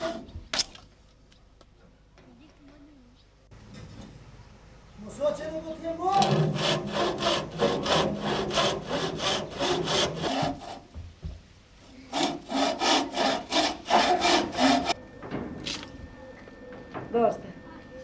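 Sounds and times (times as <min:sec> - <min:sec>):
bow saw cutting wood: 0:00.0 - 0:00.2, 0:06.2 - 0:10.8, 0:12.0 - 0:15.0.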